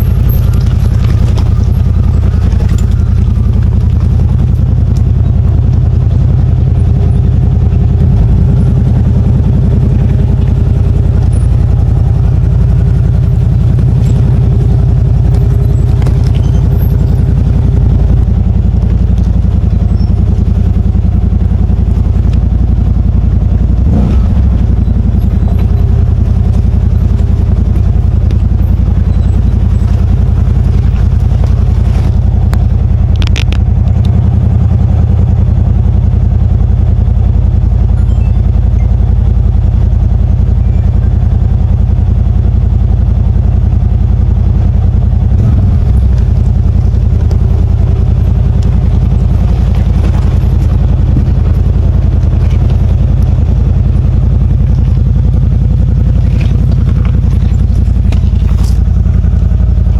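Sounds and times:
steady whine: 0:00.0 - 0:36.7, 0:37.4 - 0:59.9
vehicle engine running: 0:00.0 - 0:59.9.

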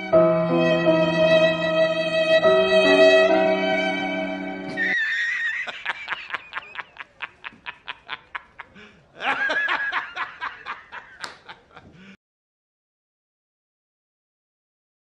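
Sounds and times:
man laughing hard: 0:04.8 - 0:12.2.

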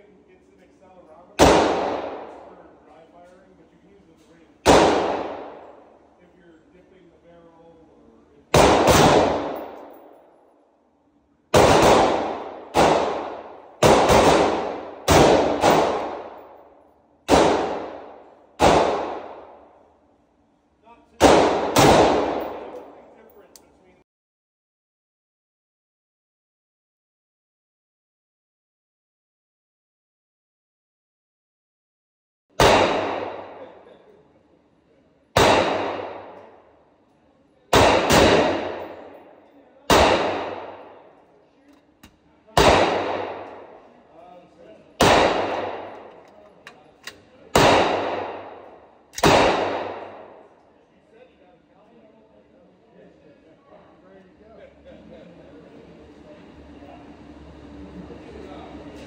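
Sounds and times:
rifle shots echoing indoors: 0:01.3 - 0:03.3, 0:04.2 - 0:06.4, 0:07.3 - 0:10.9, 0:11.5 - 0:20.1, 0:21.2 - 0:23.6, 0:32.6 - 0:34.1, 0:35.3 - 0:37.1, 0:37.7 - 0:44.0, 0:45.0 - 0:46.4, 0:47.0 - 0:50.7.

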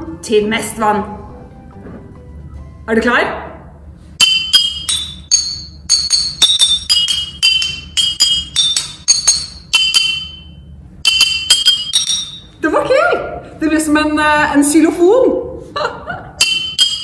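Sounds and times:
spoon striking glass bottles: 0:04.2 - 0:12.5, 0:16.4 - 0:17.0.

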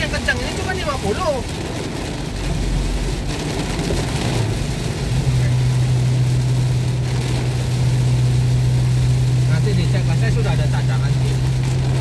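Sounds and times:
rain and wet road noise: 0:00.0 - 0:12.0.

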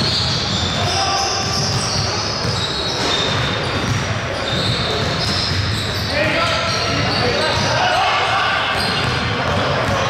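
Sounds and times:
sneakers squeaking on court: 0:00.0 - 0:10.0
basketball bouncing: 0:01.4 - 0:07.7, 0:08.7 - 0:10.0.

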